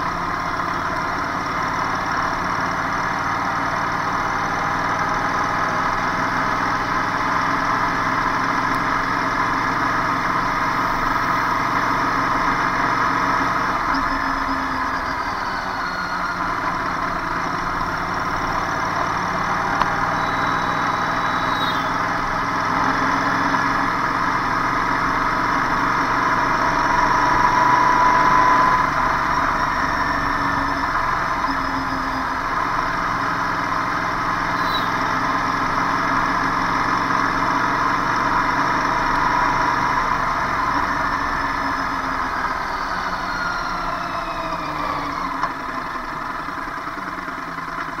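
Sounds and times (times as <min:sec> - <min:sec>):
motorcycle and vehicle engines idling: 0:00.0 - 0:48.0
steady tone: 0:23.6 - 0:32.4.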